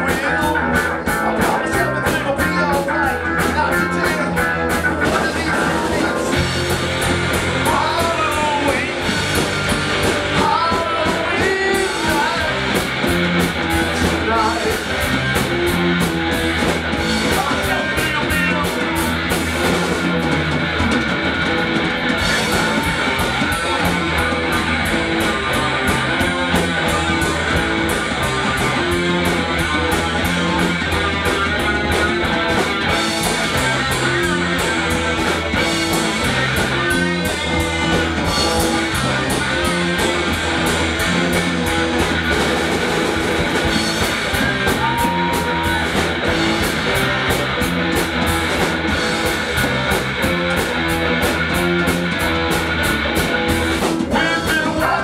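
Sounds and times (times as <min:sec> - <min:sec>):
man singing into microphone: 0:00.0 - 0:06.4, 0:07.6 - 0:09.1, 0:10.4 - 0:12.6, 0:14.1 - 0:14.8, 0:17.3 - 0:18.8, 0:54.1 - 0:55.0
live rock band playing: 0:00.0 - 0:55.0.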